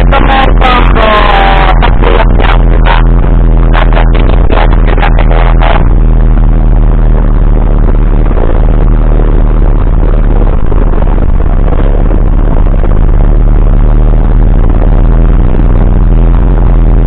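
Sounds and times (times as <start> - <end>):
tractor engine running under load: 5.6 - 17.0.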